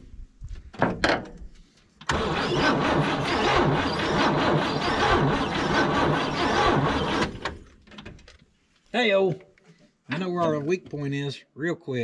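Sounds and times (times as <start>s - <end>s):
car engine cranking over: 2.1s - 7.8s.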